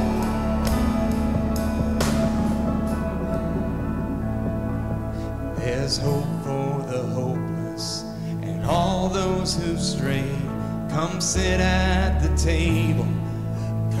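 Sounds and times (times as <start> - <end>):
guitar: 0.0 - 14.0
sustained bass notes: 0.0 - 14.0.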